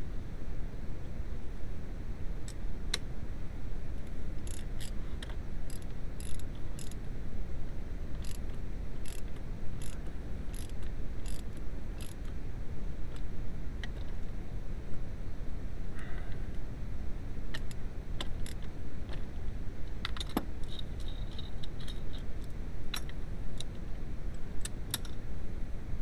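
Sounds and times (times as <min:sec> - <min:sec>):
steady low hum: 0:00.0 - 0:26.0
ratchet wrench clicking: 0:04.4 - 0:07.0, 0:08.2 - 0:08.4, 0:09.0 - 0:12.3, 0:17.5 - 0:18.6.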